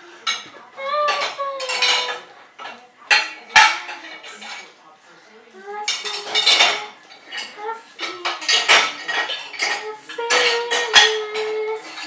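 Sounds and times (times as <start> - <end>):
child humming and babbling: 10.6 - 11.9.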